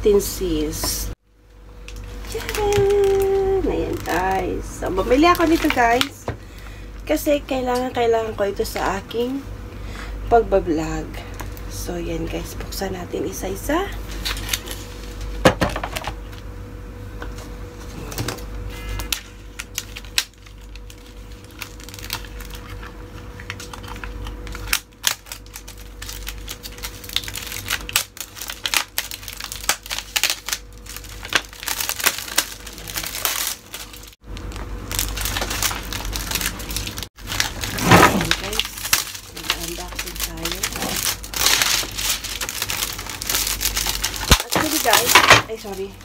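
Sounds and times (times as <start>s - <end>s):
faint steady hum: 0.0s - 46.0s
plastic wrapping crinkling: 1.9s - 6.3s, 14.0s - 16.4s, 18.3s - 46.0s.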